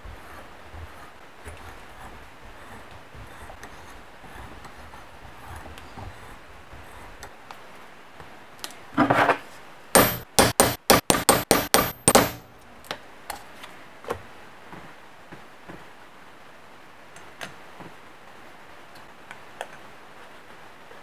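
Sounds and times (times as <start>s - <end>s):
hammer striking metal punch: 10.0s - 12.5s.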